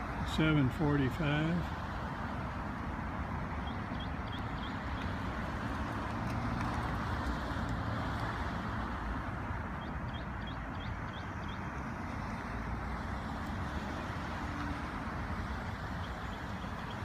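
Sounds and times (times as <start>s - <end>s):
cars passing on road: 0.0s - 17.0s
bird chirping: 3.6s - 5.1s, 9.8s - 11.7s.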